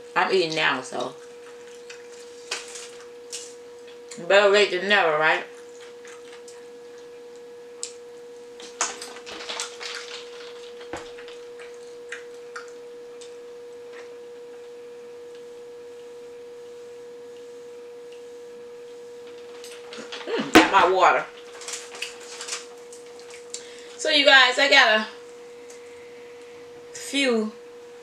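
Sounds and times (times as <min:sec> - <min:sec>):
steady mid-pitched hum: 0:00.0 - 0:28.0
chewing crispy food: 0:01.1 - 0:04.2, 0:05.5 - 0:07.2, 0:08.6 - 0:13.3, 0:21.3 - 0:23.8.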